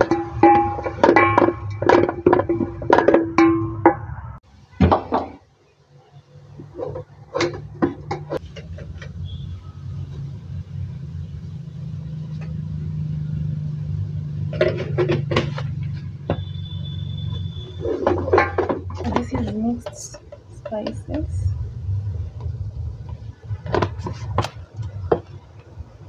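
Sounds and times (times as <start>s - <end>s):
wooden spoon scraping metal pot: 14.5s - 21.3s
steady low rumble: 20.8s - 26.0s.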